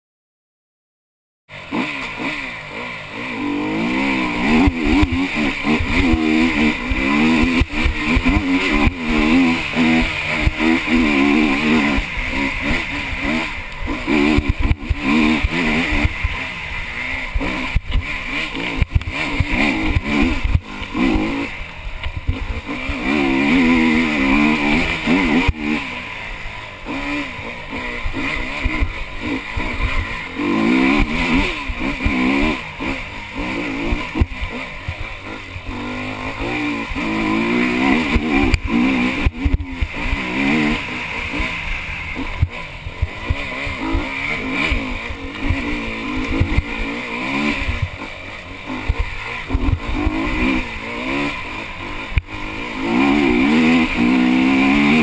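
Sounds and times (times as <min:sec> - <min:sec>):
motorcycle engine revving: 0:01.5 - 0:55.0.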